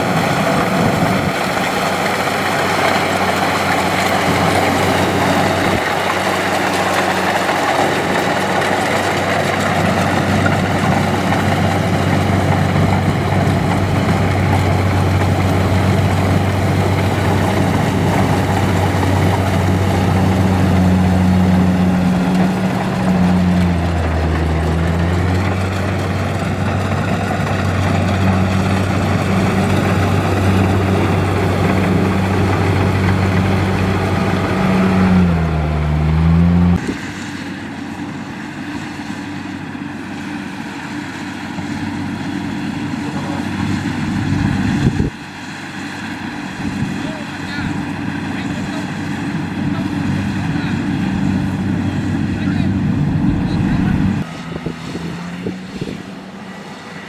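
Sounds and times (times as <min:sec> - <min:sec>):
clatter of harvester gear: 0:00.0 - 0:35.0
diesel engine running: 0:00.0 - 0:57.0.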